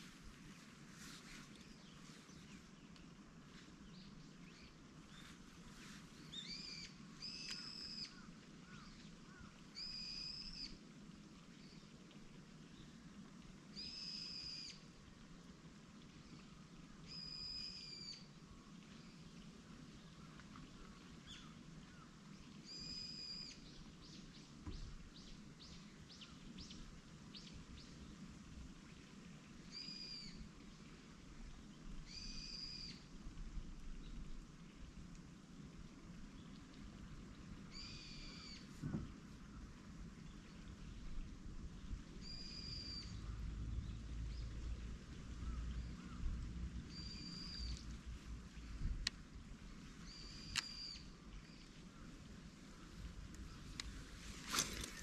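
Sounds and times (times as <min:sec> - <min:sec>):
faint bird chirps: 0:03.8 - 0:10.8, 0:13.7 - 0:14.9, 0:16.3 - 0:19.4, 0:20.0 - 0:28.1, 0:29.6 - 0:30.5, 0:32.0 - 0:33.1, 0:37.6 - 0:41.2, 0:41.8 - 0:55.0.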